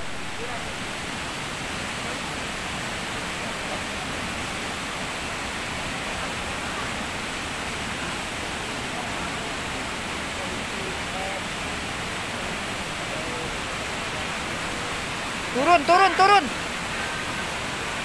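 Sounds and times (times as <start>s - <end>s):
waterfall rushing: 0.0s - 18.0s.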